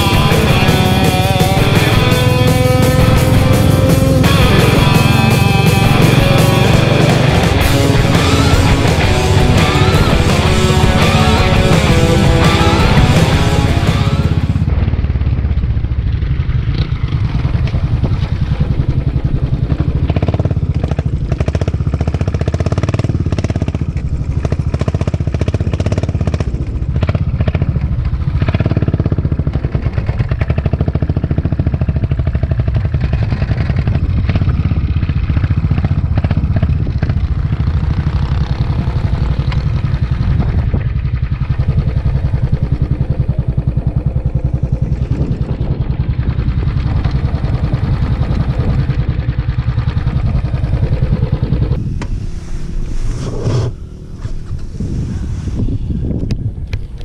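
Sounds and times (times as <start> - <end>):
motorcycle engine running: 0.0 - 57.0
road noise: 0.0 - 57.0.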